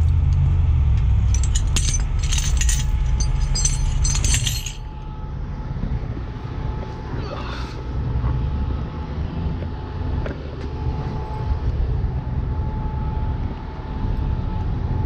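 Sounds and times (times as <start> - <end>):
low engine rumble: 0.0 - 15.0
steel chain clinking and rattling: 1.1 - 5.2.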